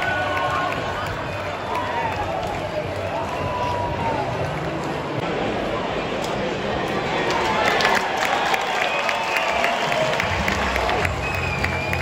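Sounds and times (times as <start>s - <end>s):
crowd cheering and applauding: 0.0s - 5.2s, 6.9s - 12.0s
shouts and whistles: 8.7s - 10.3s, 11.0s - 12.0s.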